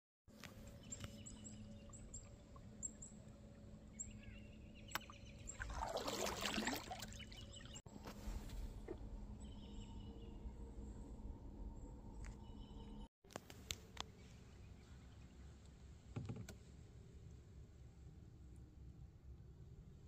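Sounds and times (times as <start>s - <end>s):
paddle splashing water: 5.4s - 7.6s.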